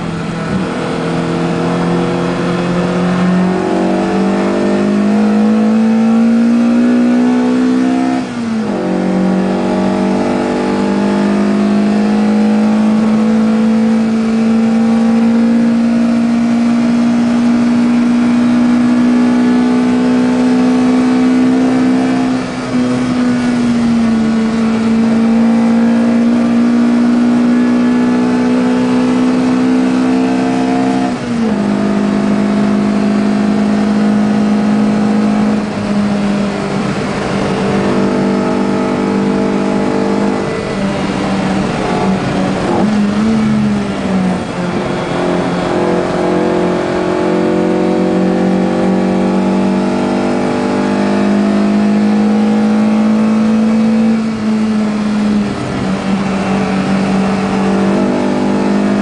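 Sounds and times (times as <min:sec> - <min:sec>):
racing engine at high revs: 0:00.0 - 0:59.0.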